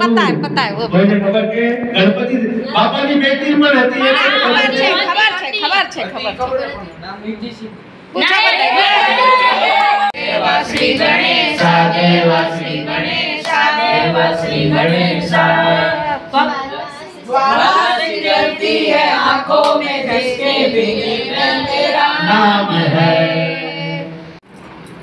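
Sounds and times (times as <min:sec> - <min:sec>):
group singing devotional song: 0:08.2 - 0:24.4.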